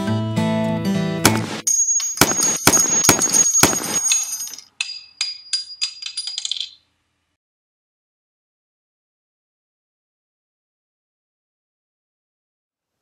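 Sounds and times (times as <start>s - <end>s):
metal piece bouncing and tinkling: 1.7s - 6.8s
gunshots with metallic ring: 2.1s - 4.6s.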